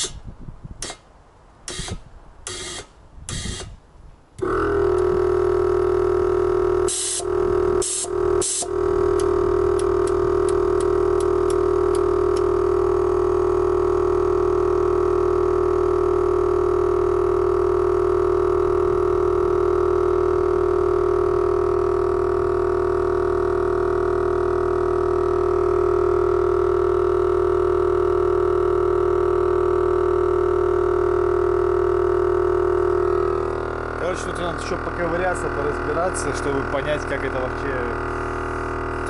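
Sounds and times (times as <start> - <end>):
air compressor droning: 0.0 - 39.0.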